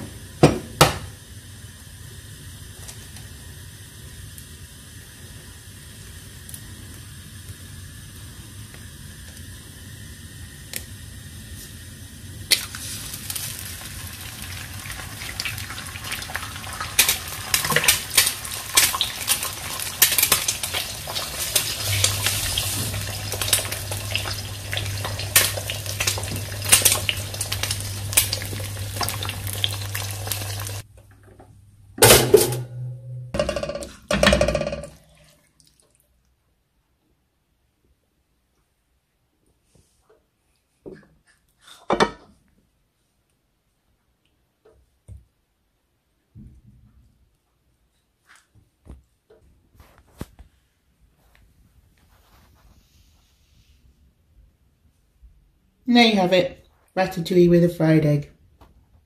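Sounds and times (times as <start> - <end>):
food sizzling in frying pan: 0.1 - 30.9
crackles and spits: 12.4 - 14.4, 15.1 - 30.9
pans or crockery clattering: 32.0 - 35.0.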